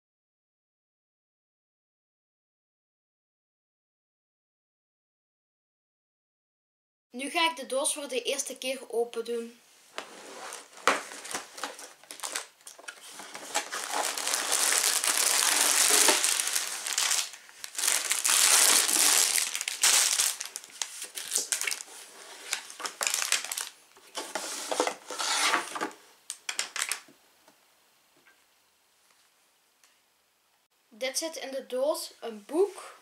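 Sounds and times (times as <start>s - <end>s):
plastic bags crinkling: 10.1s - 27.1s.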